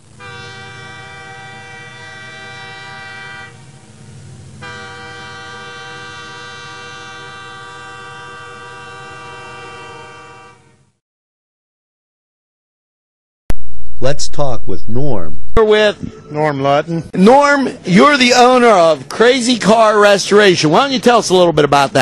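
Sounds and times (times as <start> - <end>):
train chime whistle blasts: 0.2 - 3.7, 4.6 - 10.8
low rumble: 13.5 - 16.4.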